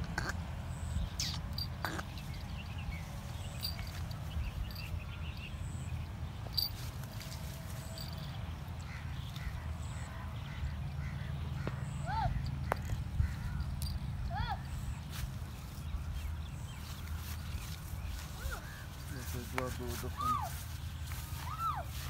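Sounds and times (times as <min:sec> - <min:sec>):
faint bird chirps: 0:00.1 - 0:06.8.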